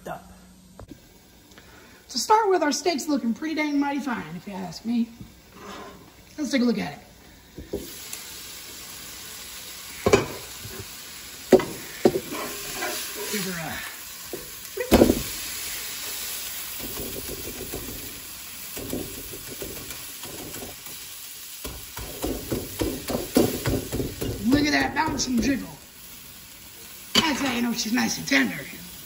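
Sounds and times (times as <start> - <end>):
steak sizzling in a frying pan: 3.5 - 29.0
metal spatula knocking on pan: 21.6 - 25.6.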